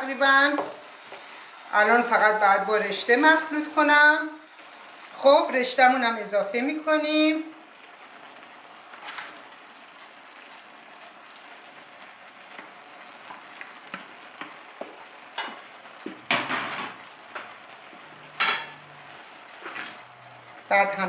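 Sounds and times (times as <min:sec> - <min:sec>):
wok sizzling: 0:00.0 - 0:21.0
spoon and colander knocking wok: 0:15.4 - 0:17.0, 0:18.3 - 0:18.8.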